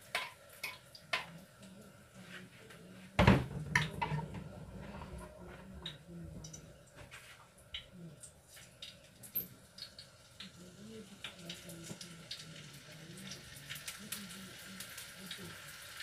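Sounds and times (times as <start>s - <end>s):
spoon bowl and pots clattering: 3.2s - 6.0s.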